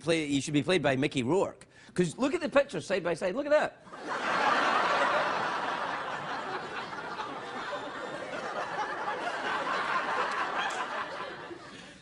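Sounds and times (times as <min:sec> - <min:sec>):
studio audience laughing: 0:03.9 - 0:12.0.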